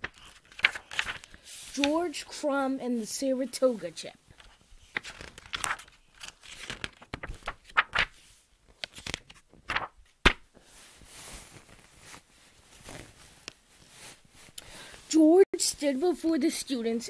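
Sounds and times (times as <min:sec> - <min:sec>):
paper pages rustling: 0:00.0 - 0:02.4, 0:04.3 - 0:14.6.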